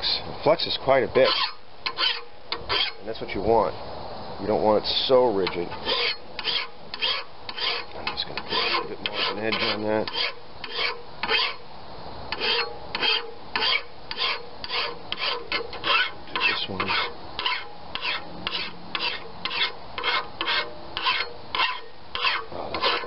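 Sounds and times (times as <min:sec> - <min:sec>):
hand file rasping on metal: 0:01.2 - 0:03.0, 0:05.7 - 0:11.6, 0:12.3 - 0:23.0.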